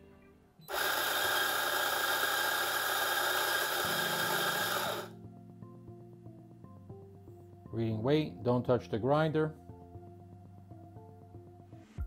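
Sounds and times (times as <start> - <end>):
coffee grinder running: 0.7 - 5.1.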